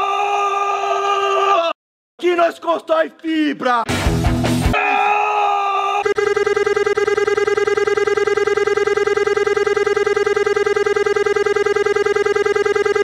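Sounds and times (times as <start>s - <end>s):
pulsing electronic buzzing tone: 6.1s - 13.0s.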